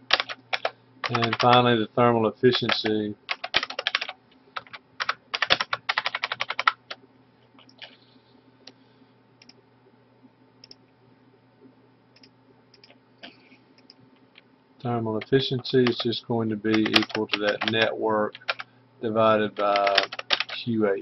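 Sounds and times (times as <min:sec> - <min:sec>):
rapid typing on keyboard: 0:00.0 - 0:01.7, 0:02.5 - 0:06.9, 0:15.2 - 0:18.7, 0:19.4 - 0:20.7
low steady hum: 0:00.0 - 0:21.0
computer mouse clicks: 0:07.6 - 0:08.0, 0:10.6 - 0:10.8, 0:12.2 - 0:14.0.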